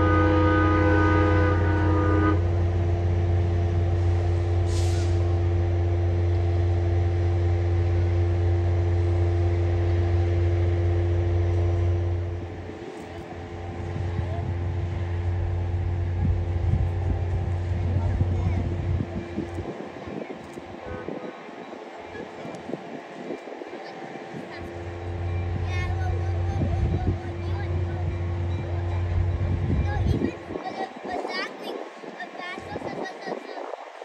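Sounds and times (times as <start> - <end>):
diesel locomotive engine drone: 0.0 - 34.0
short air hiss: 4.6 - 5.3.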